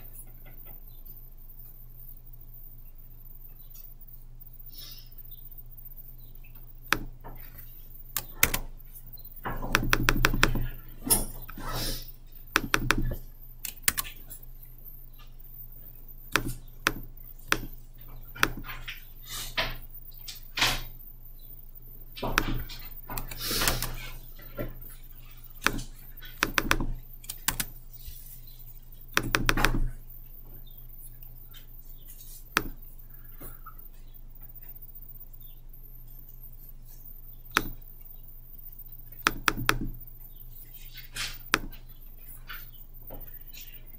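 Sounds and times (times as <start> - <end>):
steady low hum: 0.0 - 43.9
computer mouse and keyboard clicks: 8.1 - 8.7, 9.5 - 11.6, 12.5 - 14.4, 16.3 - 19.0, 22.2 - 24.7, 25.5 - 27.8, 29.1 - 30.0, 37.5 - 37.8, 39.1 - 40.0, 40.8 - 42.8.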